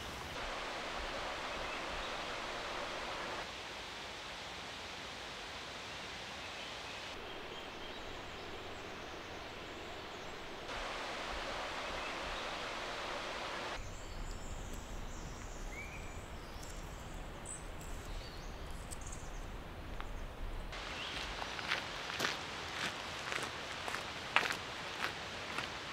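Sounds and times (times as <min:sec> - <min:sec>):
steady rushing hiss: 0:00.0 - 0:25.9
bird chirp: 0:13.8 - 0:21.3.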